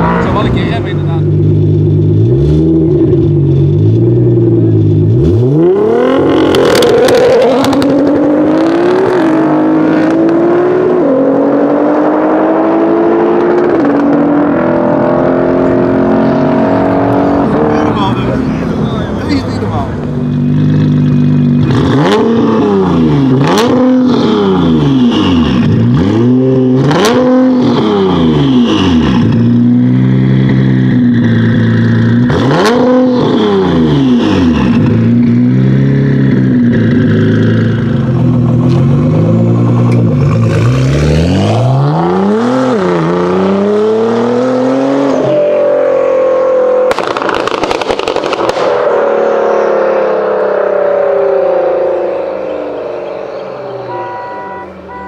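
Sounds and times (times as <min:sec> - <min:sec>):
car engine revving: 0:00.0 - 0:55.0
exhaust cracks: 0:46.8 - 0:49.2.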